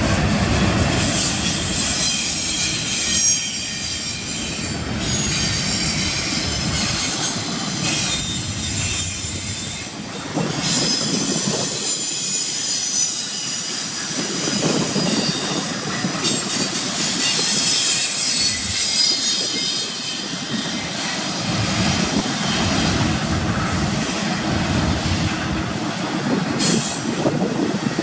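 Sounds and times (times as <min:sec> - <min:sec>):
train wheels rumbling on rail: 0:00.0 - 0:28.0
high-pitched metallic wheel squeal: 0:01.0 - 0:21.6.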